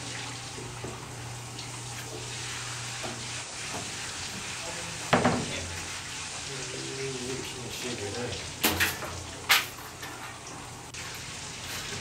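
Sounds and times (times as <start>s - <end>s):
loud knock: 5.1s - 5.5s.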